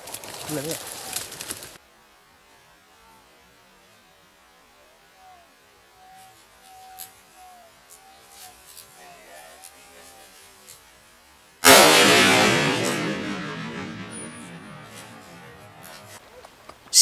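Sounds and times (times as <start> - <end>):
rifle shot with echo: 11.6 - 16.2.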